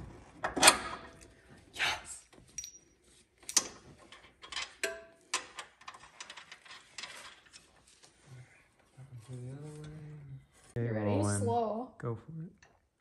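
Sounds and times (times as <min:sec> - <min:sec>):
metallic clicks and clinks of tools: 0:02.5 - 0:07.6.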